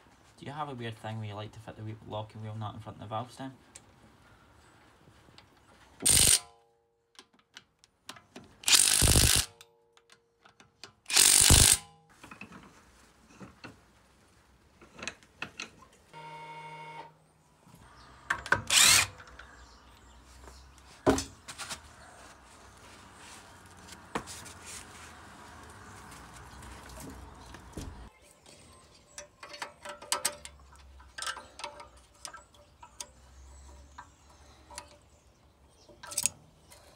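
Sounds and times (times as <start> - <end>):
cordless power tool bursts: 6.0 - 6.4, 8.6 - 9.5, 11.1 - 11.8, 18.6 - 19.3.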